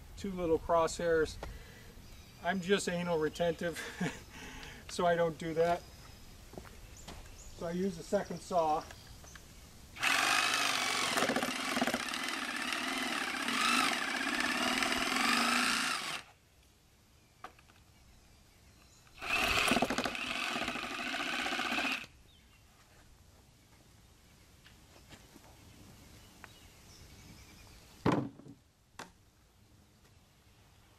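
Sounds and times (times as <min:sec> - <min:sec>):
jigsaw cutting wood: 0:10.0 - 0:16.3, 0:19.2 - 0:22.1.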